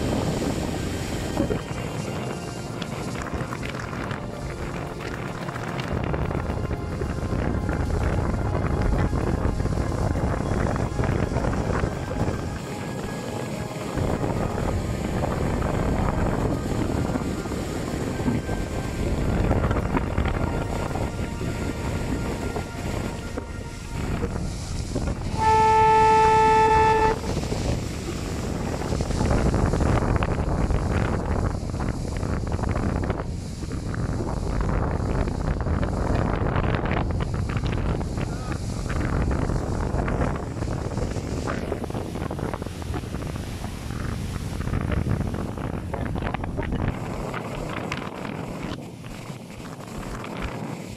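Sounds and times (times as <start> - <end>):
boat horn blast: 0.0 - 27.8
motorboat rumble: 0.0 - 50.9
water rushing: 0.0 - 50.9
wind buffeting microphone: 0.0 - 50.9.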